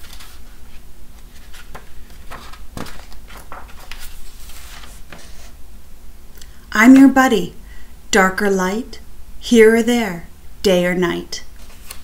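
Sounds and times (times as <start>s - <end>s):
book pages rustling: 0.0s - 5.6s, 11.6s - 12.0s
low steady hum: 0.0s - 12.0s.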